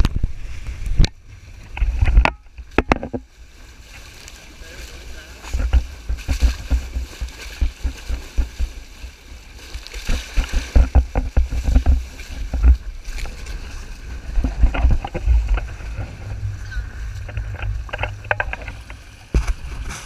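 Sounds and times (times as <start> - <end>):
water splashing against hulls: 0.0 - 20.0
wind buffeting microphone: 4.8 - 20.0.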